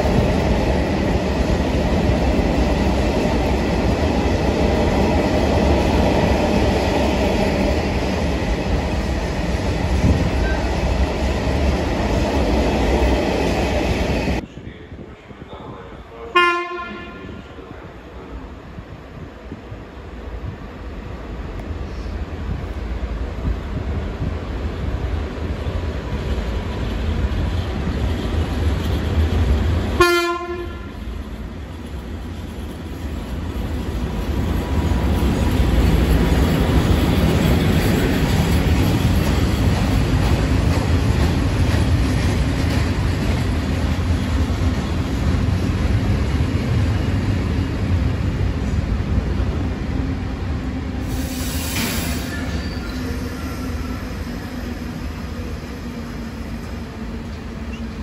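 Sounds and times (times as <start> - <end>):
train wagons rumbling: 0.0 - 19.0, 20.4 - 58.0
train horn blast: 16.2 - 17.4, 30.0 - 31.0.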